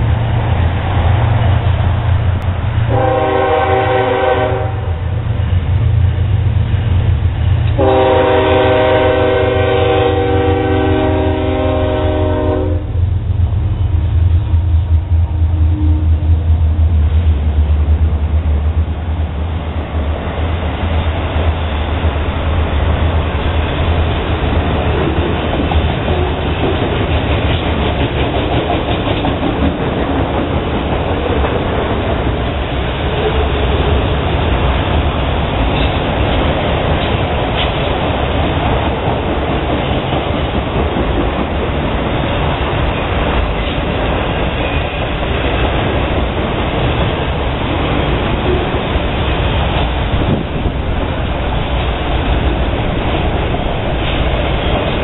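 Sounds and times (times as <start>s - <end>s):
diesel locomotives rumbling: 0.0s - 55.0s
locomotive air horn chord: 2.9s - 5.0s, 7.8s - 13.0s.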